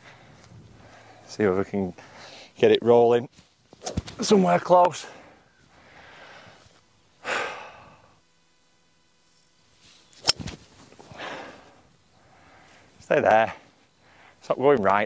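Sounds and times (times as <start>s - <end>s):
breathy exhale: 2.0s - 2.5s, 5.0s - 8.2s, 11.1s - 12.9s.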